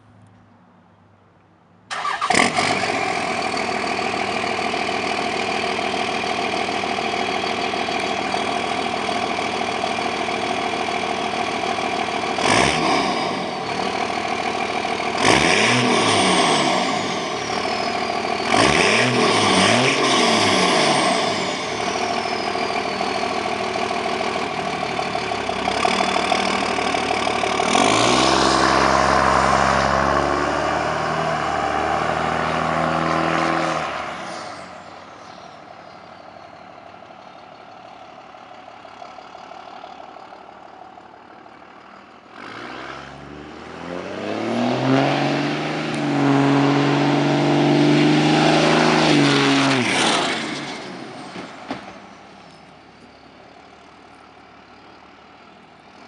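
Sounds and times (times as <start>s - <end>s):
diesel truck accelerating: 0.0s - 56.0s.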